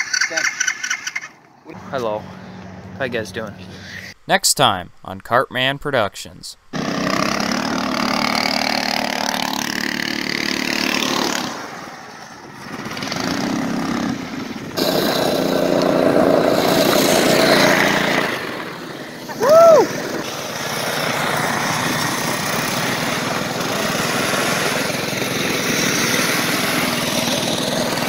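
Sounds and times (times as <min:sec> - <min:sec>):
go-kart engines revving: 0:00.0 - 0:04.2, 0:06.7 - 0:28.0
person shouting woo: 0:19.3 - 0:20.1.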